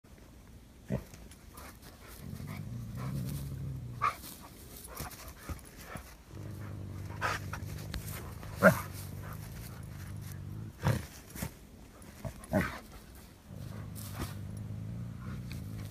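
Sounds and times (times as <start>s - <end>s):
animals growling: 0.8s - 4.5s, 6.2s - 11.4s, 12.1s - 15.9s
sharp snarls or cries: 6.5s - 11.1s.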